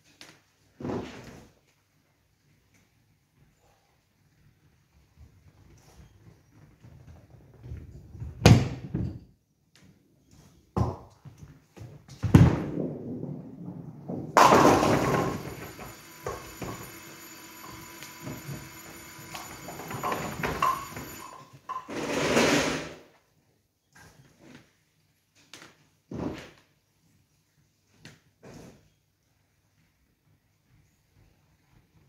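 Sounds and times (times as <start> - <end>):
ball crashing into pins: 12.2 - 23.0
bowling ball rolling: 12.4 - 22.8
bowling ball thud on lane: 14.1 - 16.9
pinsetter machine noise: 14.4 - 21.6
pins clattering: 14.4 - 22.1.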